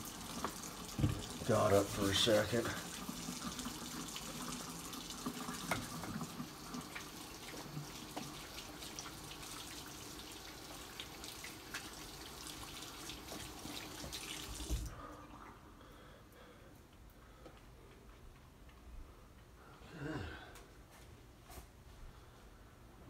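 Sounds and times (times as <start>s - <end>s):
faucet running into sink: 0.0s - 14.9s.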